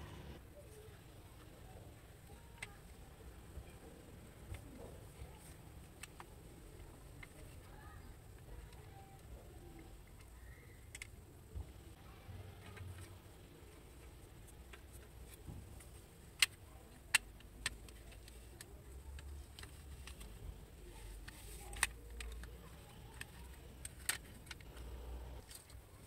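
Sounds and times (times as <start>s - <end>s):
soft rubbing and handling: 0.1s - 26.0s
plastic clicks and snaps: 2.2s - 2.8s, 4.4s - 11.2s, 13.9s - 25.8s.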